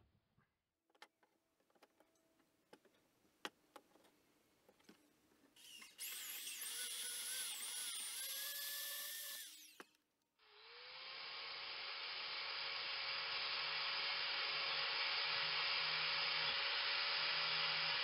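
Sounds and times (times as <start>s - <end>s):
band saw cutting metal: 5.6s - 9.9s, 11.1s - 18.0s.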